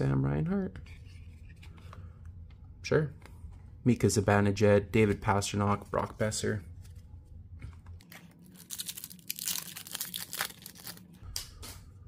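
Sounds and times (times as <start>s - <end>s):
plastic wrapper crinkling and tearing: 8.0s - 11.2s.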